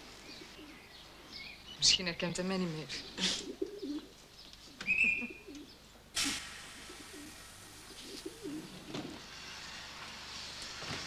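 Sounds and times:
steady background hiss: 0.0 - 11.0
pigeons cooing: 3.0 - 9.2.

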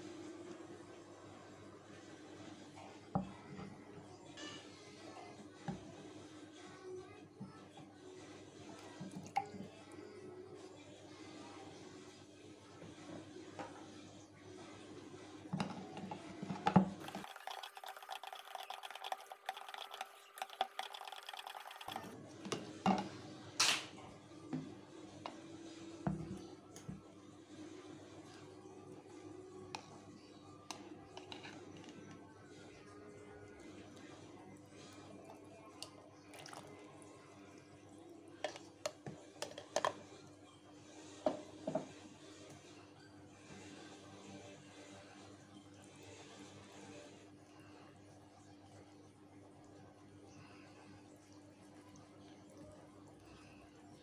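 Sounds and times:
spoon stirring in plastic jug: 15.5 - 23.2, 30.7 - 32.2, 38.4 - 40.1
liquid poured into a plastic bowl: 17.0 - 22.2, 35.8 - 37.0
low steady hum: 41.9 - 54.0.

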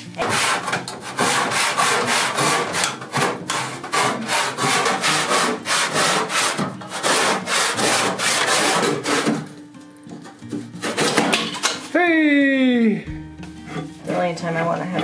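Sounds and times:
hand saw cutting wood: 0.2 - 9.5, 10.8 - 11.5.

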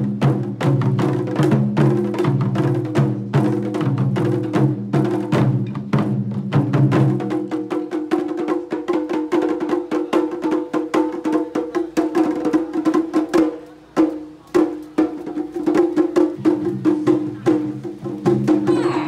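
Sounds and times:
barrel drums played with sticks: 0.0 - 19.0.

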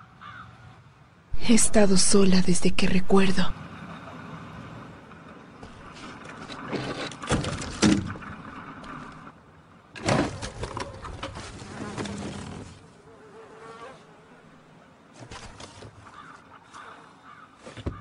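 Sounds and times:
wooden planks knocking and scraping: 5.6 - 9.2, 17.6 - 18.0.

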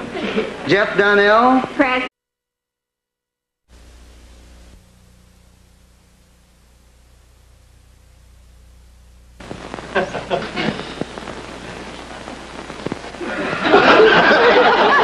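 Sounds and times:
faint hum and hiss: 0.0 - 2.1, 3.7 - 15.0
audience applause: 13.2 - 15.0.

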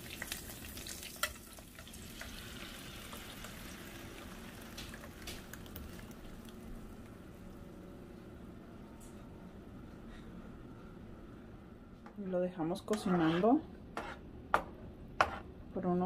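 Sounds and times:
salsa poured into hot pan: 0.0 - 7.2
oil sizzling in a frying pan: 0.0 - 7.4.

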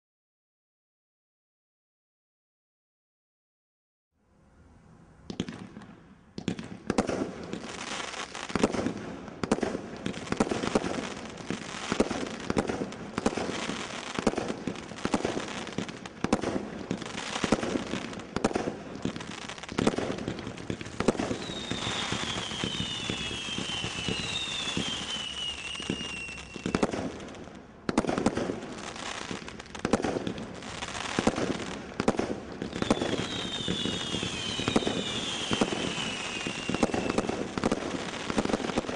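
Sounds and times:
firework crackling: 5.3 - 38.9
falling firework whistles: 7.0 - 27.4, 32.6 - 38.9.

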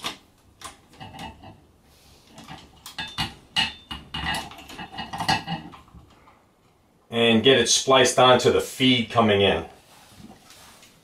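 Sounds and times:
wires clicking and scraping: 0.0 - 6.8.

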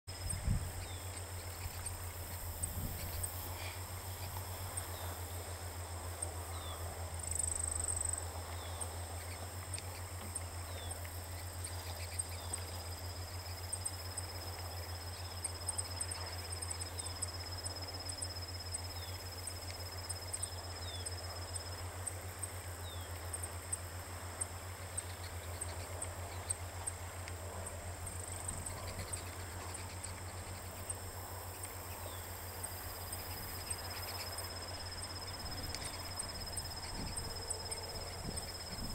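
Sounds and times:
insect trill: 0.1 - 38.9
low hum: 0.1 - 38.9
finch call notes and ticks: 8.5 - 23.8, 28.6 - 38.9.

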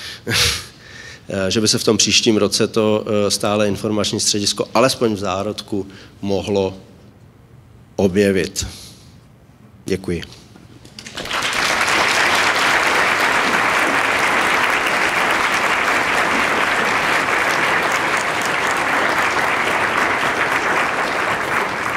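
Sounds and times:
audience applause: 11.0 - 21.9.

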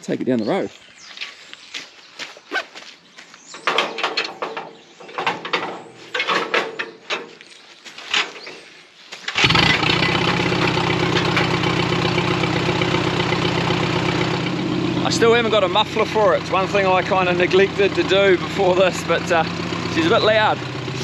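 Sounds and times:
knocks and clicks: 3.6 - 7.4
tractor engine starting and running: 3.6 - 7.4, 9.2 - 21.0.

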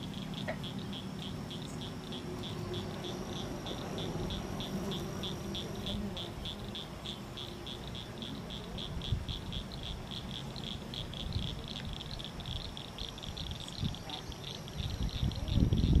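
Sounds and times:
animal chirping rhythmically: 0.0 - 16.0
wind rumble on microphone: 8.6 - 16.0.

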